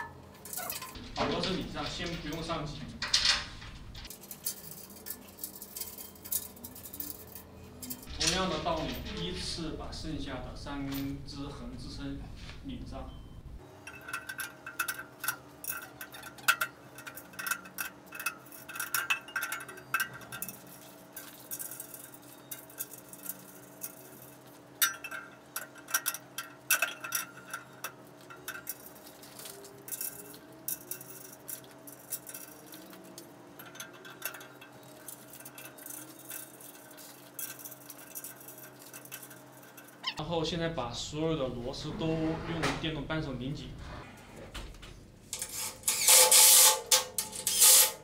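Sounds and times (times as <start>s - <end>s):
small metal parts tapping: 0.0s - 9.6s, 13.7s - 40.2s
metal screws clinking: 0.4s - 9.0s, 13.8s - 40.2s, 45.3s - 48.0s.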